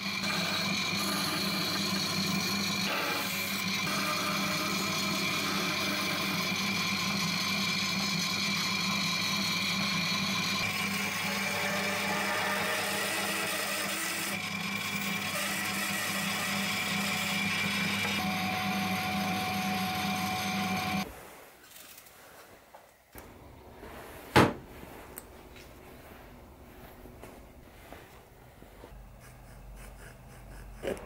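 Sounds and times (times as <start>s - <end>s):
bandsaw cutting wood: 0.0s - 21.1s.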